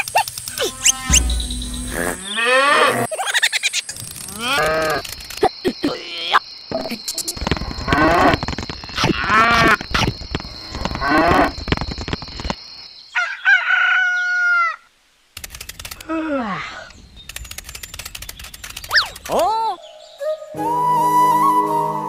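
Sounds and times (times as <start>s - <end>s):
steady high whine: 0.5s - 2.4s
wavering animal call: 0.5s - 3.1s
cow mooing: 0.6s - 3.1s
fine clicking: 17.2s - 19.5s.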